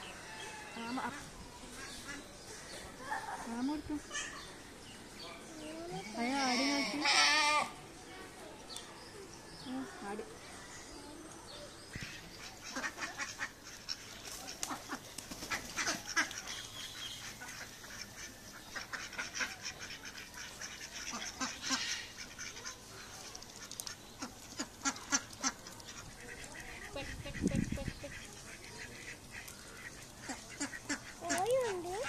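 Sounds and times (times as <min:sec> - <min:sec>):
ducks quacking: 0:00.9 - 0:02.8, 0:11.9 - 0:32.0.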